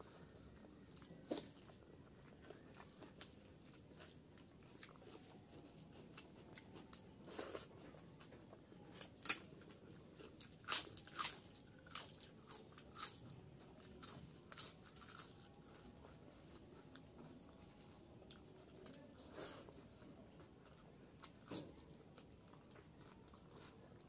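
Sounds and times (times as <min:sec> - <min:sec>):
crunchy bites: 0:10.3 - 0:15.6.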